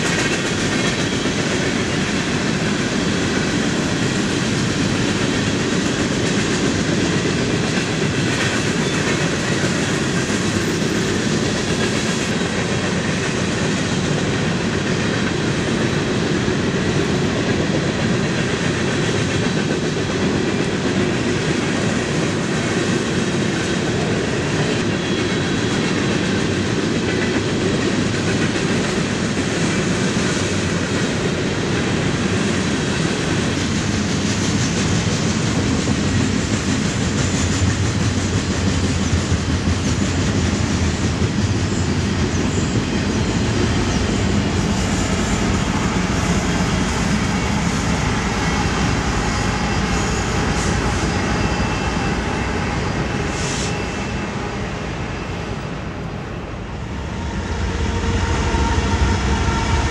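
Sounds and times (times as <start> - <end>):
freight train wheels on rails: 0.0 - 59.9.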